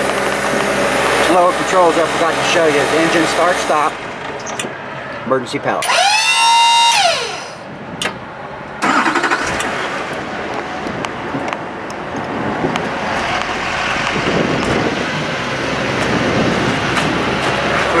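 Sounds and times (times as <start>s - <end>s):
truck engine starting and running: 0.0s - 18.0s.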